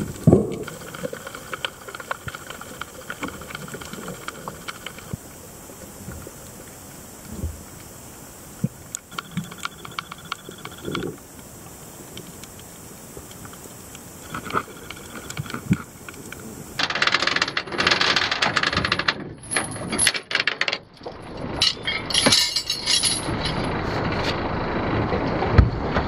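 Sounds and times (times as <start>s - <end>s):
anchor chain rattling and clanking: 16.8s - 20.8s, 21.6s - 23.8s.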